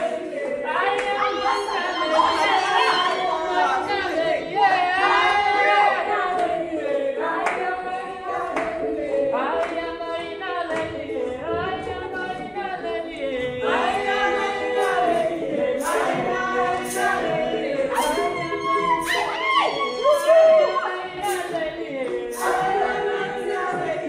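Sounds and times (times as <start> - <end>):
group of voices singing: 0.0 - 24.0
hand claps: 8.5 - 8.8.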